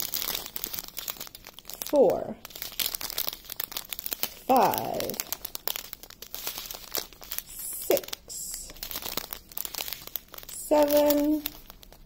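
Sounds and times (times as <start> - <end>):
plastic bags crinkling: 0.0 - 12.0
person humming: 7.5 - 8.7.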